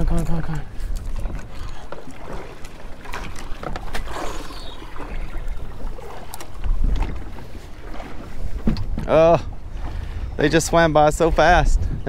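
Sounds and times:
water lapping at boat: 0:00.0 - 0:12.0
wind buffeting microphone: 0:00.0 - 0:12.0.

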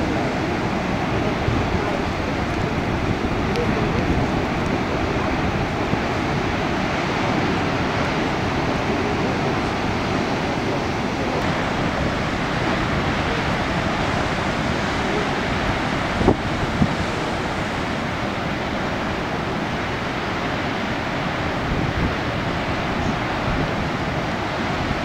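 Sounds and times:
ocean waves breaking: 0:00.0 - 0:25.0
wind buffeting microphone: 0:00.0 - 0:25.0.

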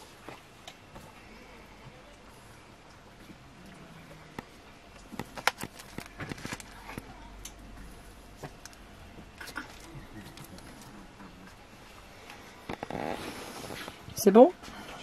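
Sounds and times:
paper sheets crinkling: 0:05.2 - 0:07.0.

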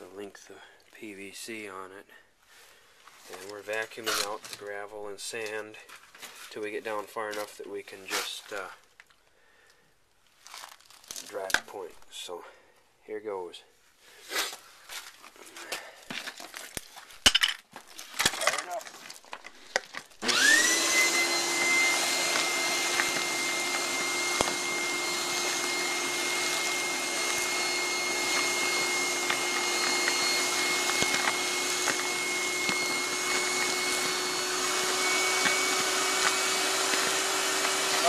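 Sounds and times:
shop vac motor whine: 0:20.2 - 0:38.0.

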